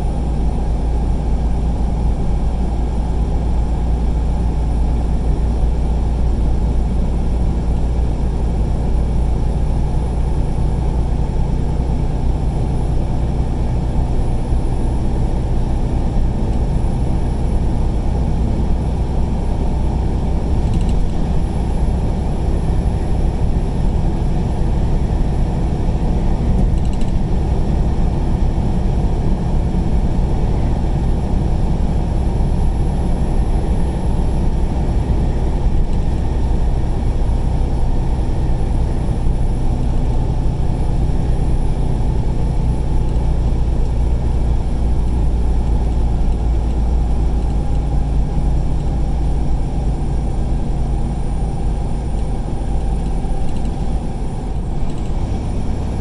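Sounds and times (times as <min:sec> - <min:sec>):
vehicle engine hum: 0:00.0 - 0:56.0.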